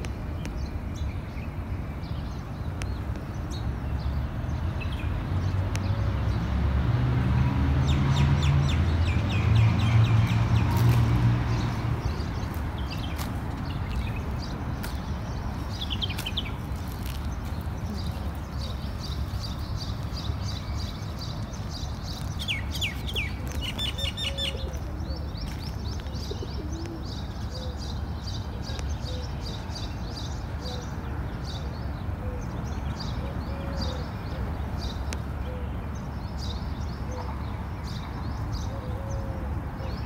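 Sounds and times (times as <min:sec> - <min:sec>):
small birds chirping: 0:07.9 - 0:39.3
downward-sweeping bird calls: 0:20.6 - 0:27.9.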